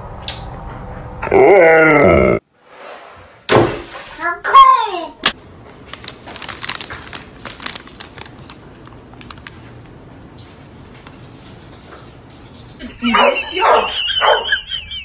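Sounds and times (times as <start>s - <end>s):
paper bag crinkling: 5.7s - 9.6s.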